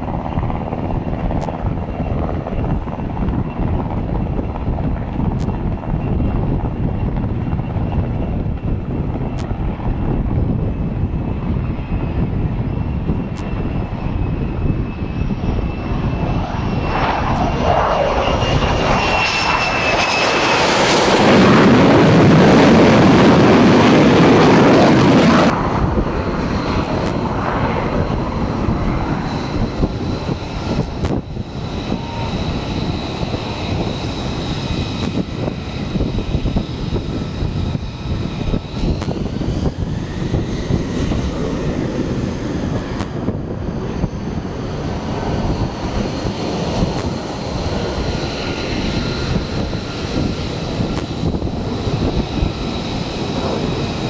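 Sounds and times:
jet engine whine and roar: 0.0 - 54.0.

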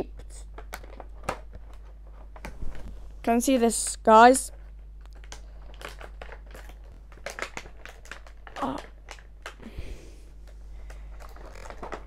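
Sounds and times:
plastic packaging crinkling: 0.4 - 3.0, 4.5 - 9.7, 10.4 - 12.0.

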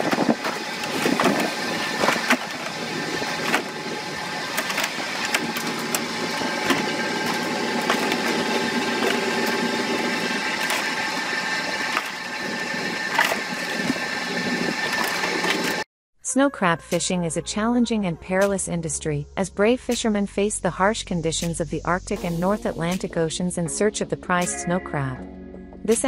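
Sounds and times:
boat machinery whining: 0.0 - 15.9.

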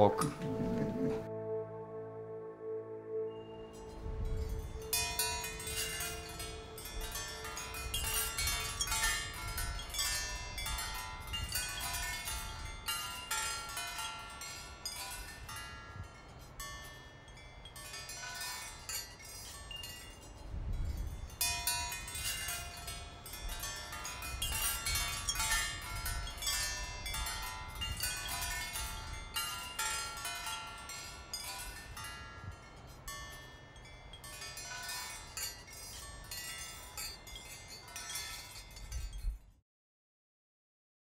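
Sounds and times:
metal wind chimes ringing: 0.0 - 1.2, 3.4 - 39.6
low rumble: 0.2 - 7.8.

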